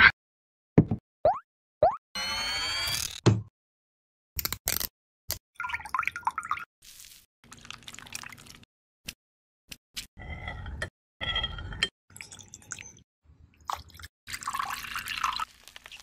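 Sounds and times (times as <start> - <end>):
liquid pouring into a glass: 5.6 - 6.7, 7.5 - 8.6, 13.7 - 16.0.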